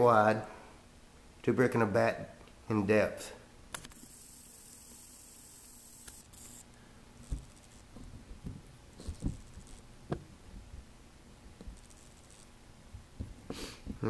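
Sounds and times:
camera handling bumps and scuffs: 7.2s - 10.3s.

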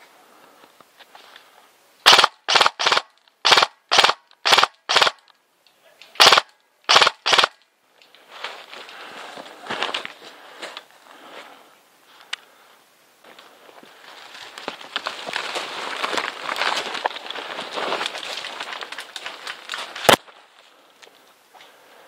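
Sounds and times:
airsoft rifle firing bursts: 2.0s - 5.2s, 6.2s - 7.6s
rustle of leaf litter: 13.9s - 20.9s.

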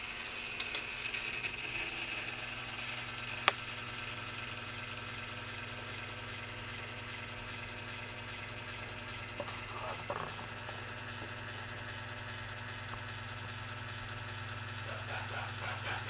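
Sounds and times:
house fan hum and whir: 0.0s - 16.0s
sharp clicks: 0.6s - 0.9s.

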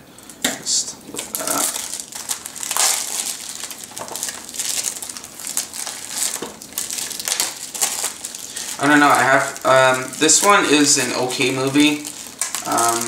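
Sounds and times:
plastic shrink wrap crinkling: 0.2s - 13.0s.

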